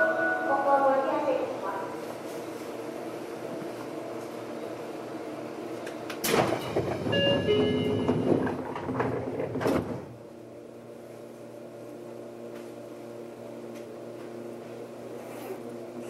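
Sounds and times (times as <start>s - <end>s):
train car electrical hum: 0.0s - 16.0s
train door mechanism noise: 5.8s - 10.2s
doors knocking shut: 6.2s - 10.1s.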